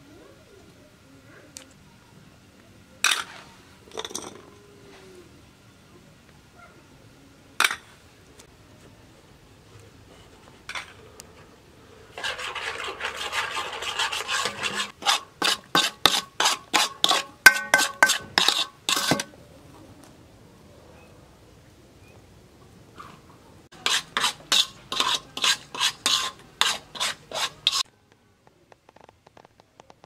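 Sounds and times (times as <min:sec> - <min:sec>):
rubbing and scraping on metal: 0:12.1 - 0:19.3, 0:23.8 - 0:27.9
quick strokes ringing metal bowl: 0:15.8 - 0:19.3
sharp tap on metal bowl: 0:17.5 - 0:18.4.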